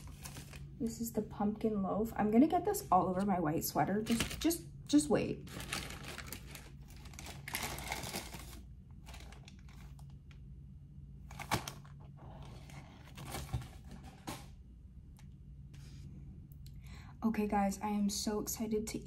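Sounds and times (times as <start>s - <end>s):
paper bag crinkling: 5.4s - 10.2s.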